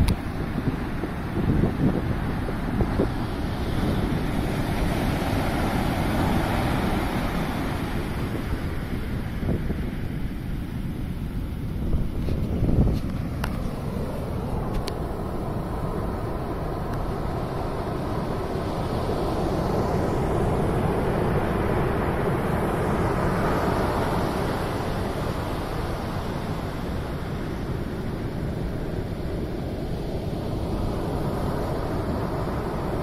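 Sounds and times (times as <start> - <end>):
heavy surf breaking on beach: 0.0 - 33.0.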